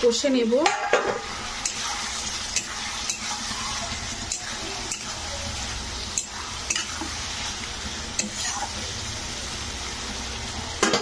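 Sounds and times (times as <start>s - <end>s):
pumpkin sizzling in a pan: 0.0s - 11.0s
spatula striking and scraping pan: 0.6s - 5.2s, 6.1s - 7.2s.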